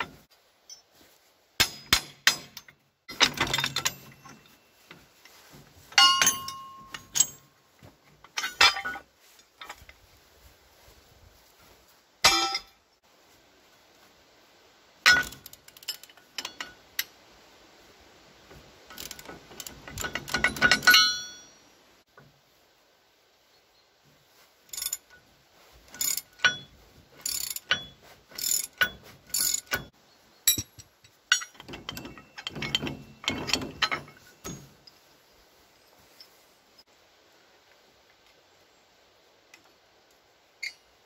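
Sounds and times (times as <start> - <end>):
ratchet wrench clicking: 24.7 - 25.0, 27.2 - 27.8, 28.4 - 29.8.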